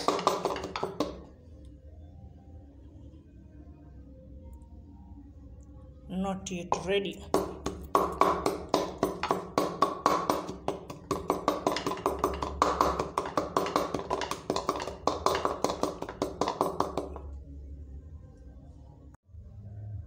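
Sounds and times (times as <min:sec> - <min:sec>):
pestle pounding in wooden mortar: 0:00.0 - 0:01.3, 0:06.7 - 0:17.4.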